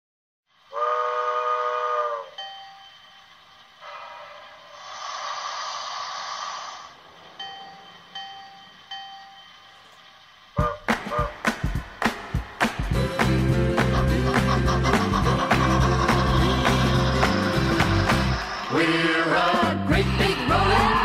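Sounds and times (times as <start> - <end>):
steam hissing: 0.5 - 13.0, 13.9 - 21.0
steam whistle blast: 0.7 - 3.0, 3.8 - 5.8, 10.6 - 11.4
locomotive bell ringing: 2.2 - 4.2, 7.2 - 10.4.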